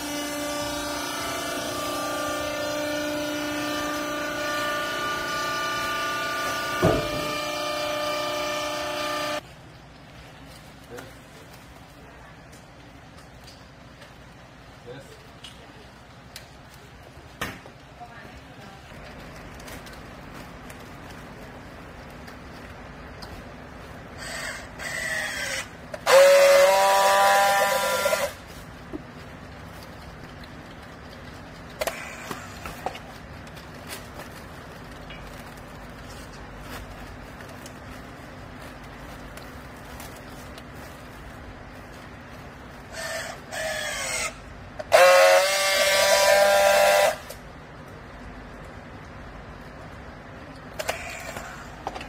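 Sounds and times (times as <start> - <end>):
strapping tool motor whirring: 0.0 - 9.4, 24.2 - 28.4
strapping tool welding whine: 0.0 - 9.5, 24.1 - 29.0, 30.8 - 37.8, 38.7 - 47.4, 50.7 - 52.0.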